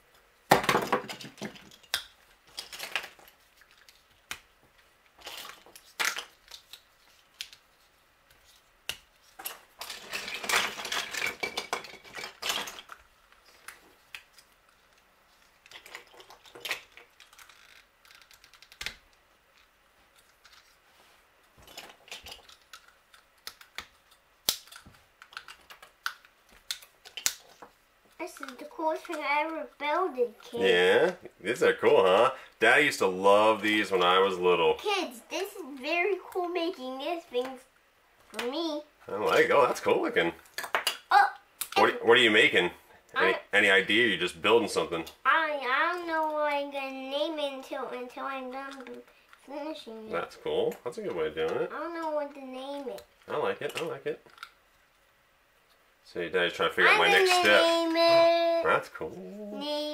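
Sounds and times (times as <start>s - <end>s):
plastic pieces snapping together: 0.5s - 4.5s, 21.7s - 27.6s, 40.4s - 41.8s
hands rummaging through plastic parts: 9.2s - 13.7s.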